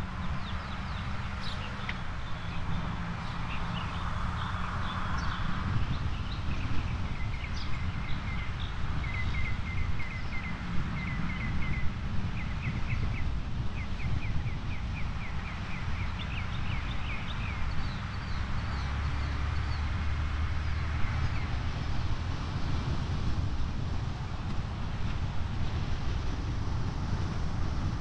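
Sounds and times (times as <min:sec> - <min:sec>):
small birds chirping: 0:00.0 - 0:21.6.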